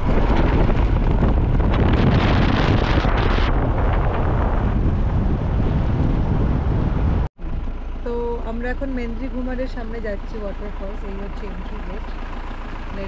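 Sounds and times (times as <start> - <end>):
wind buffeting microphone: 0.0 - 7.8
vehicle road noise: 0.0 - 13.0.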